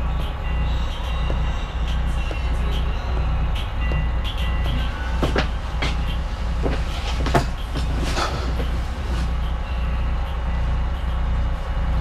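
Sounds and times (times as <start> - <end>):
motor vehicle rumbling: 0.0 - 12.0.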